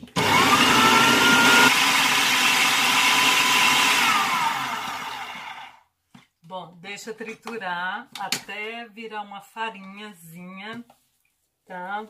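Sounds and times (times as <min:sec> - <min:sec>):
food processor motor whine: 0:00.0 - 0:05.8.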